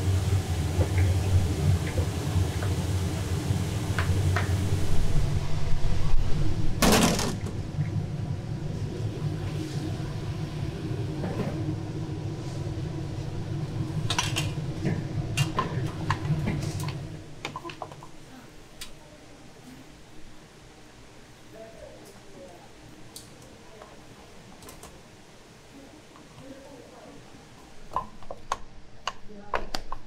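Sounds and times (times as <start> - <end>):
low hum: 0.0 - 18.6.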